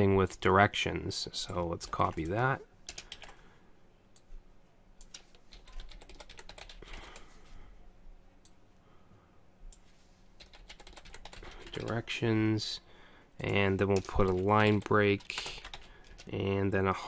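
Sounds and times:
keyboard typing: 1.5s - 3.4s, 5.0s - 7.3s, 10.4s - 12.1s, 13.4s - 16.4s.

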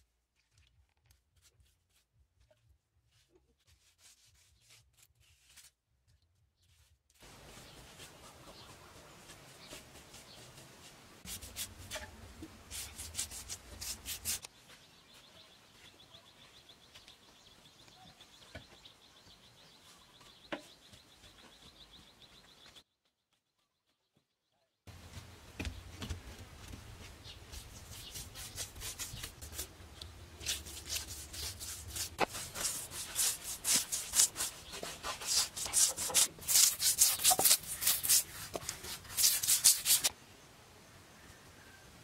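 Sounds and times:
paint brush scratching on cement: 3.1s - 5.8s, 6.7s - 14.5s, 27.5s - 40.1s.

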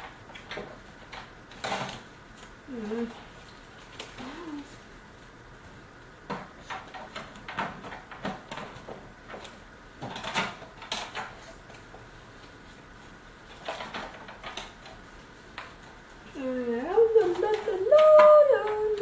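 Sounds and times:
objects knocking and rustling: 0.0s - 2.5s, 6.2s - 16.0s.

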